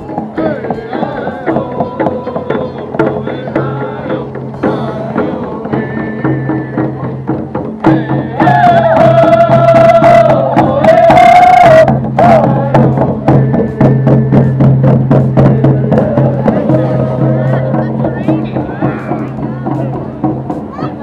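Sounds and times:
drums beating: 0.0 - 21.0
low drone: 11.8 - 20.4.

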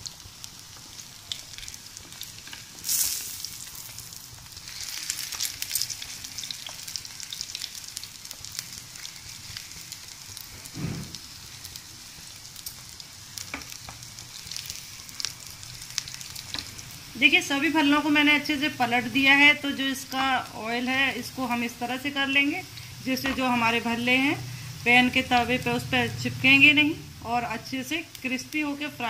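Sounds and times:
oil sizzling in a pan: 0.0 - 29.0
soft thump: 10.8 - 11.2.

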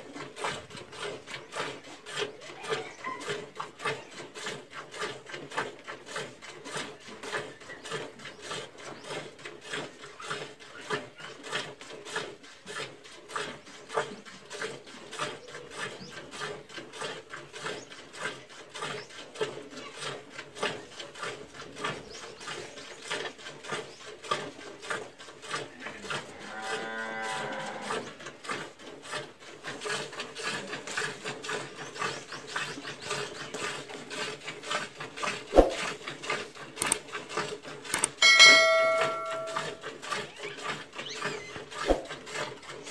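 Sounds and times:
cow mooing: 26.3 - 28.0
short bright chime: 38.2 - 39.8.

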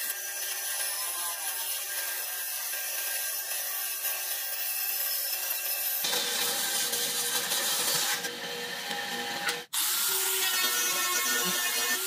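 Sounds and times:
bandsaw cutting wood: 0.0 - 12.0
angle grinder sanding wood: 9.8 - 12.0.

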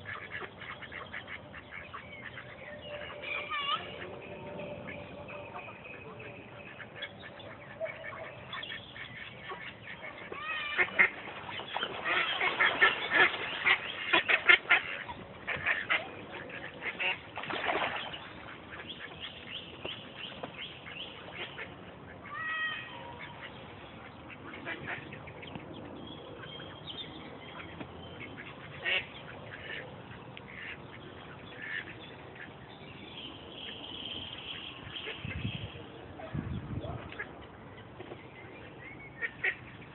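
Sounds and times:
ducks quacking: 0.0 - 25.6, 27.5 - 32.6, 39.2 - 39.9.

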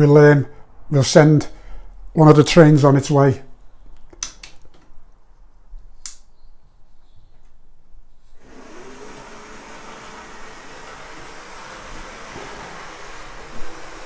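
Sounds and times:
model train motor whirring: 8.4 - 14.0.

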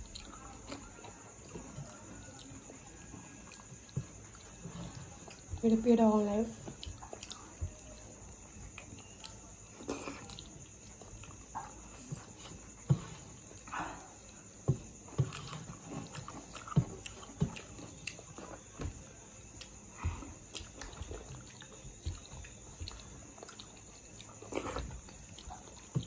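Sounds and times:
wet chewing and lip smacks: 6.6 - 12.8, 13.4 - 26.0.

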